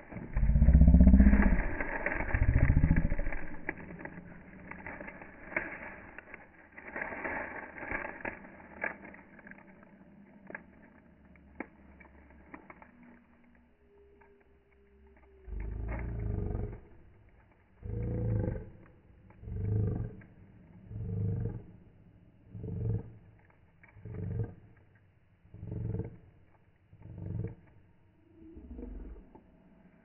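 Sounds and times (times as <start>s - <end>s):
scattered clicks and ticks: 0.0s - 21.9s, 22.5s - 28.0s
deep animal bellowing: 0.1s - 5.0s, 15.4s - 17.0s, 17.8s - 21.9s, 22.5s - 23.3s, 25.5s - 26.3s, 27.0s - 27.8s.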